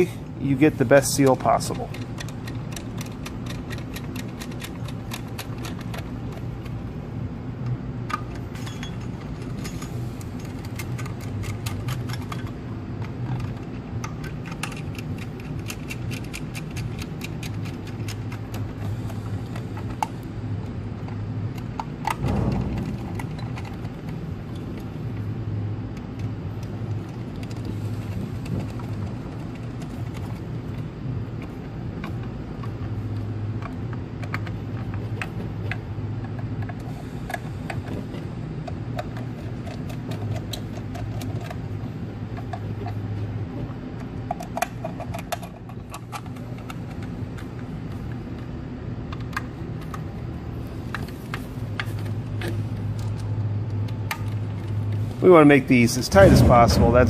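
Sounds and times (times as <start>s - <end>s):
steady low hum: 0.0s - 57.0s
screwdriver clicks and metal ticks: 1.2s - 6.8s, 7.6s - 20.2s, 44.0s - 47.5s.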